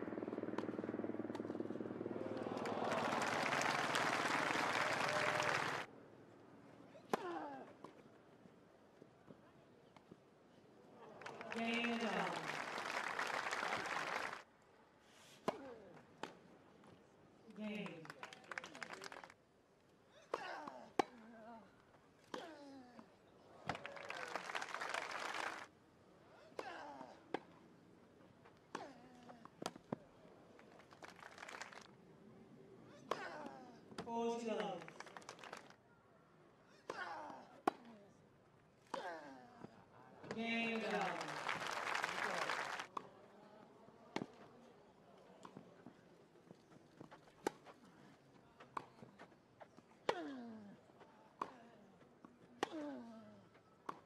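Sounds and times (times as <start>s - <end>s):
crowd applauding: 2.2s - 5.9s, 11.2s - 14.4s, 17.9s - 19.4s, 23.7s - 25.7s, 30.6s - 31.9s, 34.6s - 35.8s, 40.6s - 43.0s.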